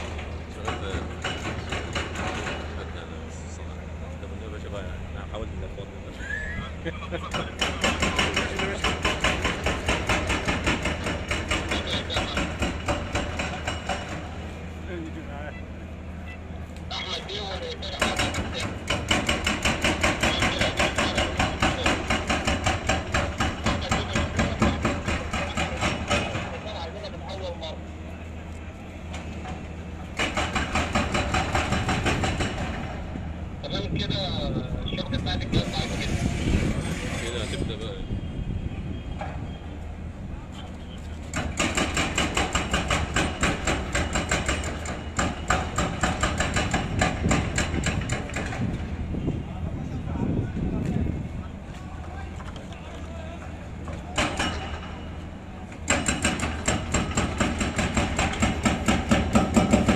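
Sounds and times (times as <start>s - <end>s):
demolition hammer pounding concrete: 0.0s - 2.9s, 7.2s - 14.4s, 17.8s - 26.7s, 29.5s - 33.2s, 41.3s - 49.0s, 53.8s - 55.1s, 55.8s - 59.9s
diesel engine hum: 0.0s - 59.9s.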